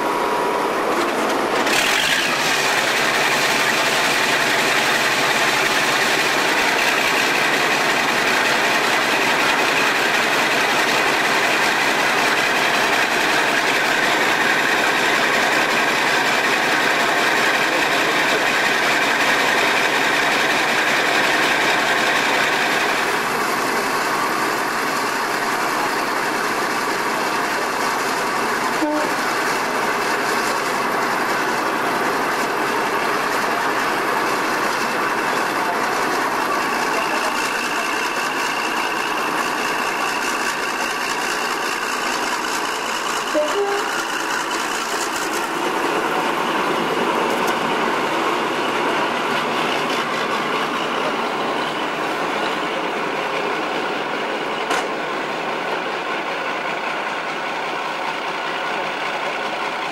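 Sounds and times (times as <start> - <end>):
diesel locomotive engines running: 0.0 - 59.9.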